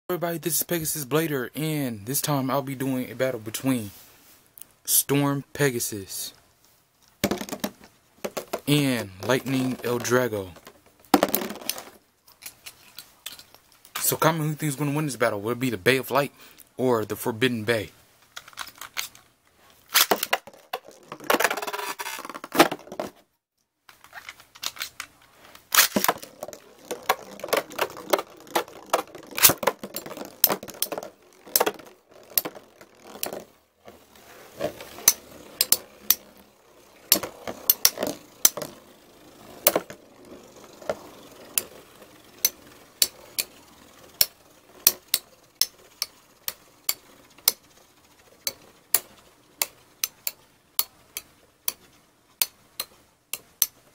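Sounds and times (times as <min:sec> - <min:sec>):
spinning tops launched rasping: 0:25.6 - 0:53.8
spinning tops clacking together: 0:25.7 - 0:53.8.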